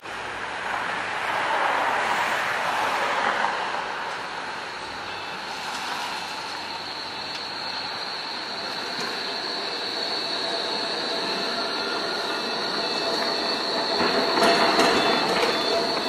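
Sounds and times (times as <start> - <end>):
tram rumble: 0.0 - 16.0
tram wheels squealing: 0.6 - 16.0.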